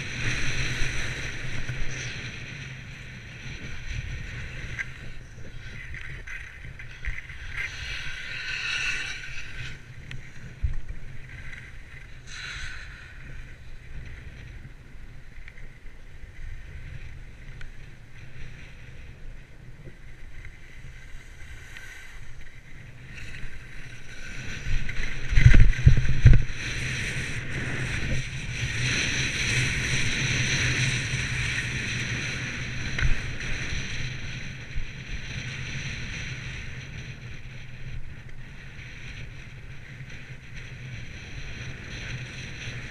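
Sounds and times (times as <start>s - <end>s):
skis scraping over packed snow: 0.0s - 42.9s
wind rumbling on microphone: 0.0s - 42.9s.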